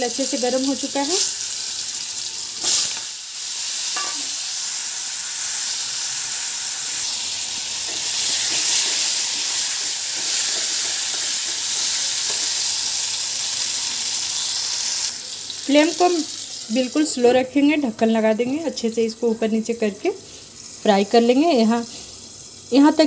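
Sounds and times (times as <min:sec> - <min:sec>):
potatoes sizzling in hot oil: 0:00.0 - 0:23.0.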